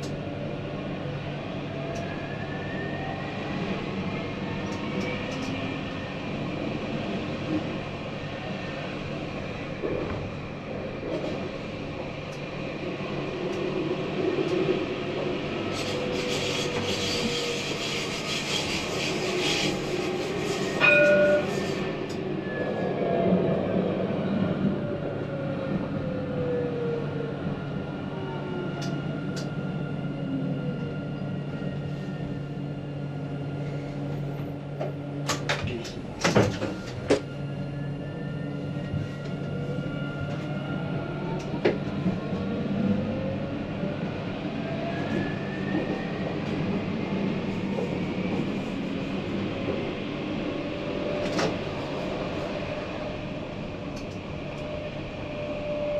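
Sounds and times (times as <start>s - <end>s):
tram drive whining: 0.0s - 55.9s
tram running on rails: 0.0s - 55.9s.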